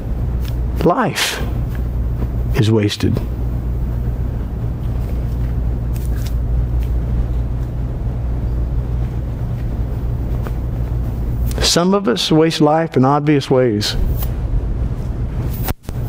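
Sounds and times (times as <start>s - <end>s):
room noise hum and rumble: 0.0s - 16.0s.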